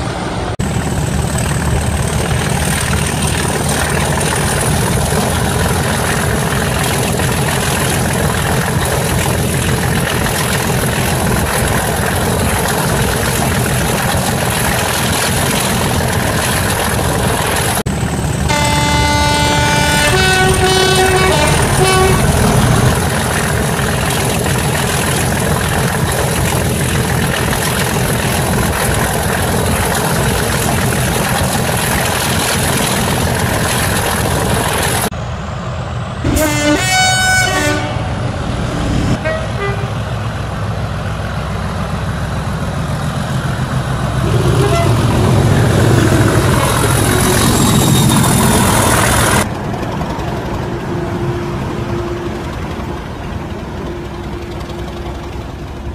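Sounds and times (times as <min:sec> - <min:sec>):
diesel locomotive engine running: 0:00.0 - 0:55.9
locomotive horn toots: 0:18.5 - 0:23.0, 0:36.3 - 0:38.4, 0:39.2 - 0:40.2, 0:44.2 - 0:45.4.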